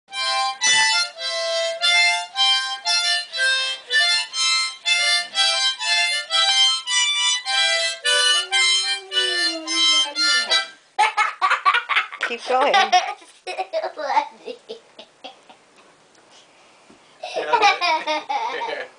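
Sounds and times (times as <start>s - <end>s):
harmonica notes and chords: 0.1s - 10.8s.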